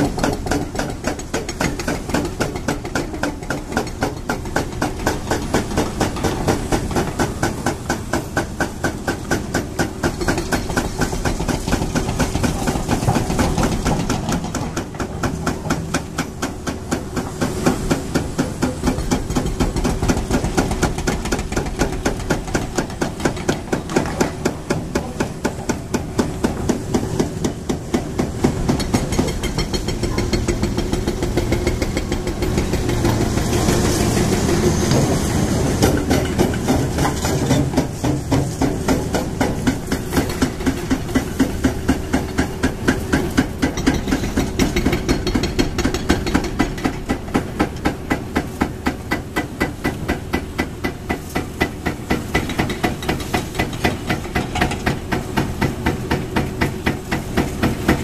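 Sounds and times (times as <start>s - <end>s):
hydraulic breaker hammering concrete: 0.0s - 58.0s
diesel excavator engines droning: 0.1s - 58.0s.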